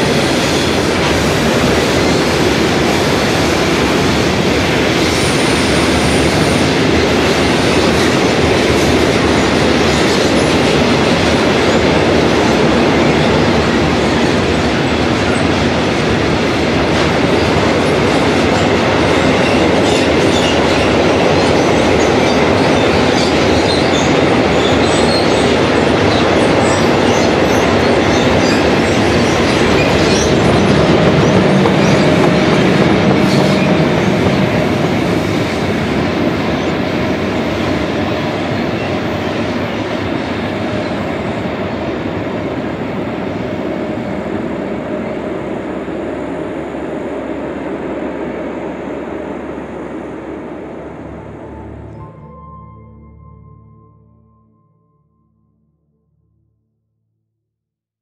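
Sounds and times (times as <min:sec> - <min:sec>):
electric locomotive hum: 0:00.0 - 0:54.5
high wheel squeaks: 0:18.5 - 0:35.5.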